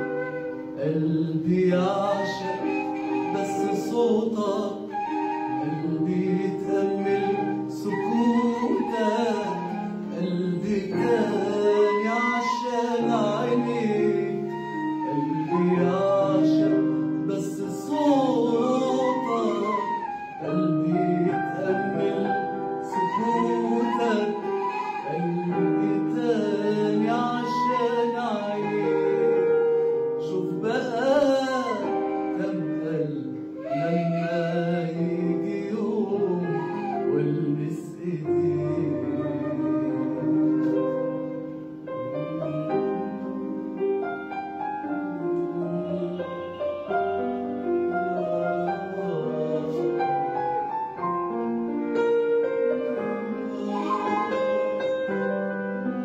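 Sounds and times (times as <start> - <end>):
man singing: 0.0 - 43.8, 44.9 - 55.5
instruments holding steady notes: 36.2 - 56.0.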